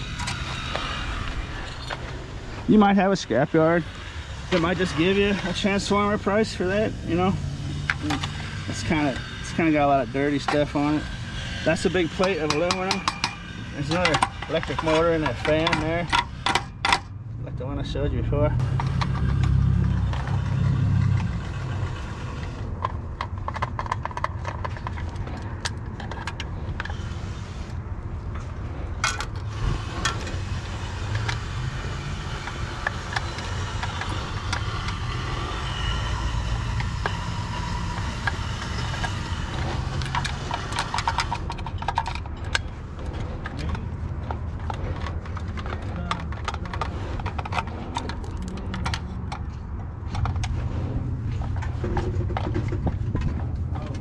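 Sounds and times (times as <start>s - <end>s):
low rumble: 13.5s - 23.4s
metal clinks and rattles: 38.2s - 50.6s.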